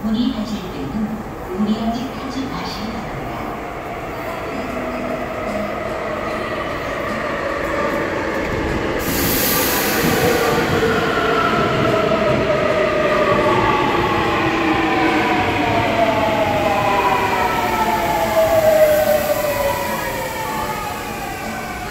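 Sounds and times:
subway train whine falling in pitch: 4.5 - 21.9.

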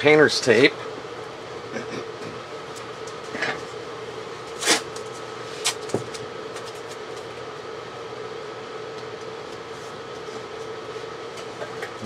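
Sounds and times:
background hum: 0.0 - 12.0
tape rustling and tearing: 4.5 - 5.9.

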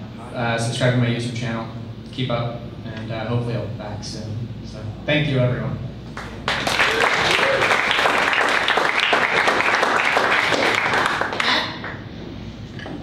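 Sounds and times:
audience applauding: 6.2 - 12.0.

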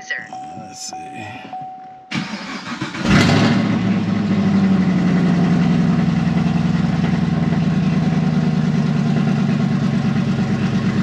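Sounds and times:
car warning chime: 0.0 - 2.8
car engine starting and idling: 0.4 - 11.0
starter cranking engine: 2.1 - 3.7.

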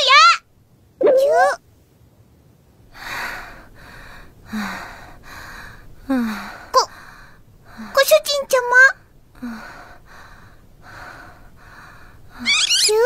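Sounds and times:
woman breathing heavily: 2.9 - 8.0, 9.0 - 12.6
high squeaky voice: 12.4 - 13.0.

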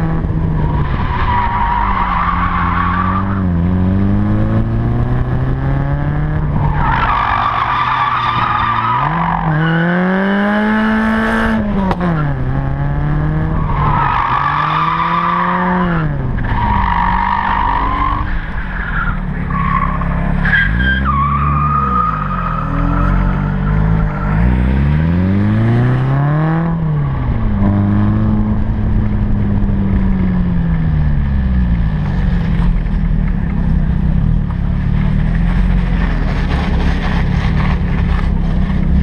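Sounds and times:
car engine revving: 0.0 - 39.0
tyre squeal: 13.6 - 24.6.

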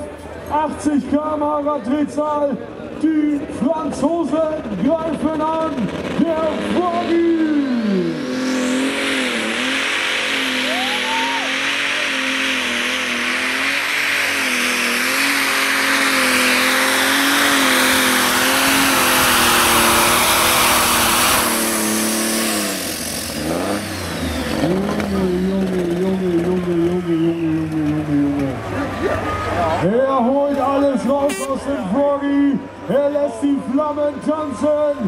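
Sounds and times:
tractor diesel engine at full power: 0.0 - 35.0
loud hissing rush: 7.1 - 24.6.

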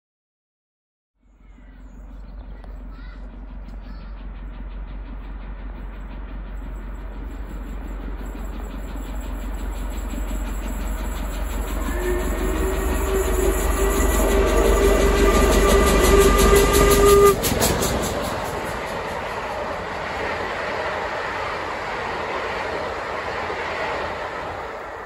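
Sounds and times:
steam locomotive approaching: 1.2 - 25.0
train coaches running by: 1.2 - 25.0
long steam whistle: 10.8 - 18.2.

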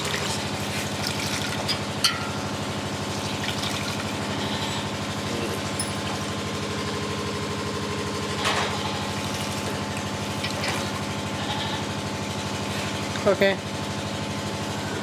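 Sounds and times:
wet squelches and drips: 0.0 - 1.7, 9.2 - 11.0
motor droning: 2.1 - 15.0.

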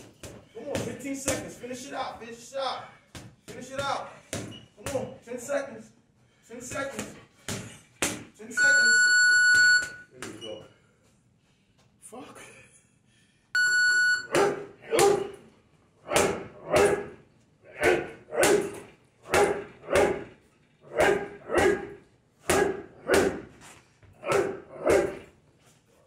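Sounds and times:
boxing gloves punching heavy bag: 21.0 - 23.6.

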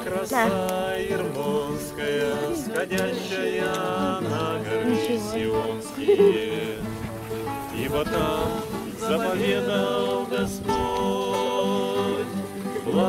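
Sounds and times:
strummed acoustic guitars: 0.0 - 13.0
voices singing together: 0.0 - 13.0.

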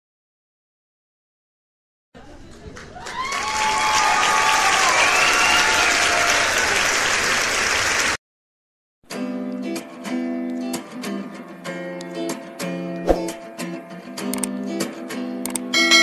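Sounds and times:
crowd applauding and cheering: 2.8 - 8.2.

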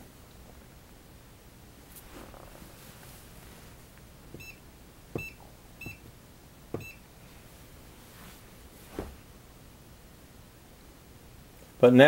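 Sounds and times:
soft thumps: 5.1 - 7.0, 8.3 - 9.3.

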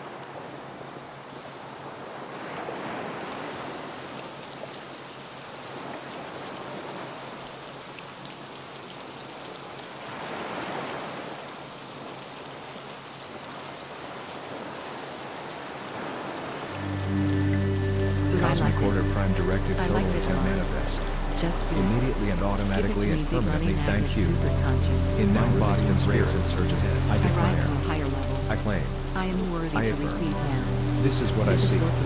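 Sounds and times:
rushing water like surf: 0.0 - 32.0
low hum: 16.8 - 32.0.

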